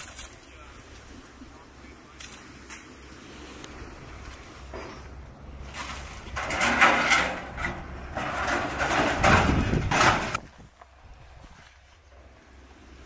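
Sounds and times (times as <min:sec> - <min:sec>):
metal roofing sheets scraping: 0:04.6 - 0:10.6.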